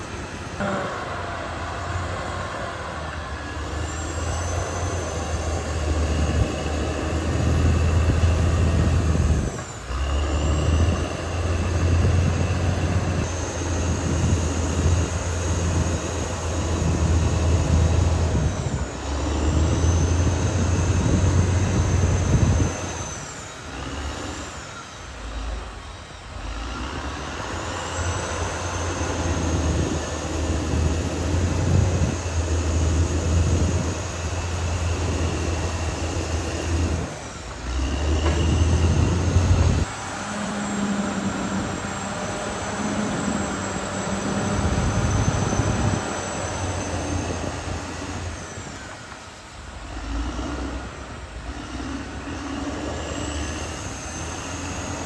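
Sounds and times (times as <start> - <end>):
bulldozer diesel engine under load: 0.0 - 55.0
high metallic squeals: 0.2 - 50.6, 52.0 - 55.0.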